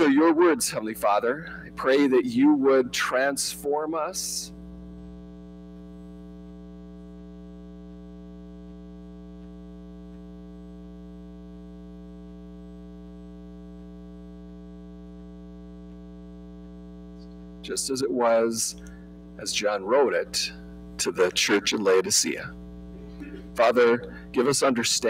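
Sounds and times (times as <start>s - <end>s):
electrical mains hum: 0.0s - 25.0s.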